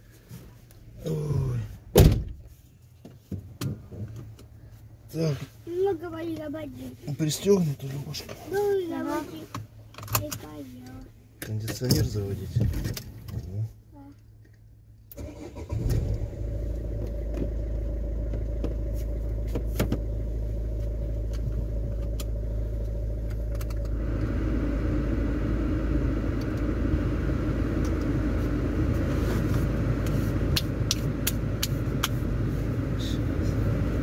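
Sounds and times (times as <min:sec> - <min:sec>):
car engine starting and running: 0:14.4 - 0:34.0.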